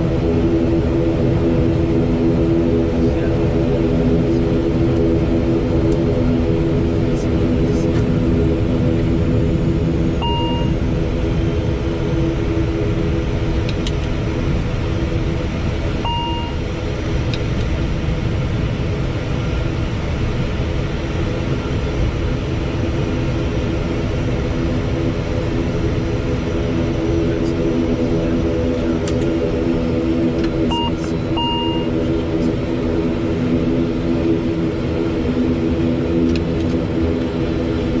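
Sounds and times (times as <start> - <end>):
turboprop engines droning: 0.0 - 38.0
short electronic beeps: 10.2 - 10.8, 16.1 - 16.6, 30.7 - 31.9.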